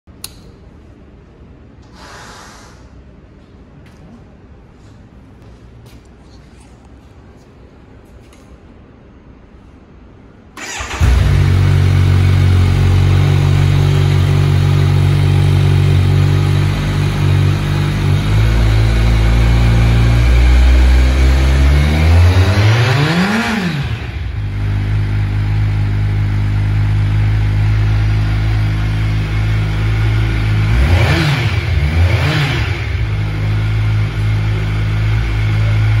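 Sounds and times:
motorcycle engine idling and revving: 10.6s - 36.0s.

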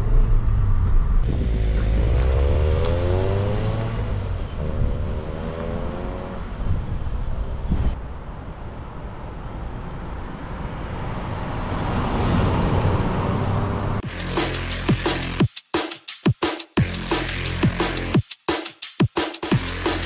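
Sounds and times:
car engine accelerating: 0.0s - 7.7s
road and wind noise: 0.0s - 14.0s
electronic dance music: 14.0s - 20.0s.

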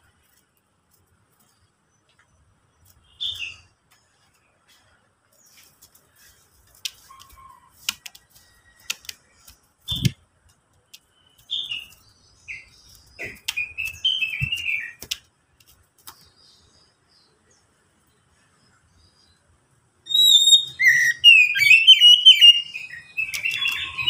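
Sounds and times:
bird chirping: 1.4s - 4.3s, 6.9s - 10.2s, 10.8s - 15.2s, 16.0s - 24.0s.

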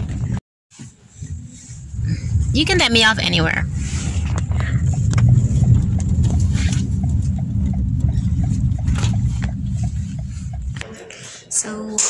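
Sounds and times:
car engine rumble: 0.0s - 12.0s
road noise: 0.0s - 12.0s.

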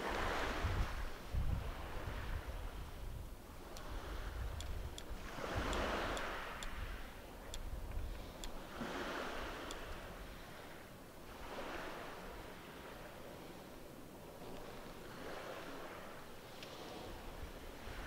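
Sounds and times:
waves lapping on gravel: 0.0s - 7.2s, 8.0s - 18.0s
wind rumbling on microphone: 0.0s - 18.0s.

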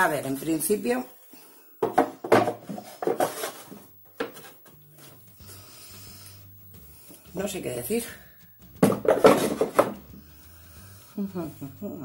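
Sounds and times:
wooden drawer knocking and scraping: 1.8s - 4.5s, 8.8s - 10.0s.

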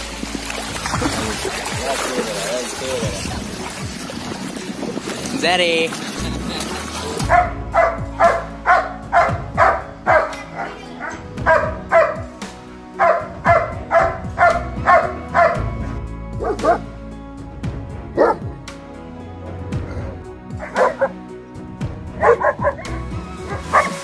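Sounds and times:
background music: 0.0s - 24.0s
dog barking deeply: 7.2s - 12.3s, 13.0s - 15.8s, 16.4s - 16.9s, 18.2s - 18.5s, 19.8s - 21.2s, 22.2s - 24.0s.

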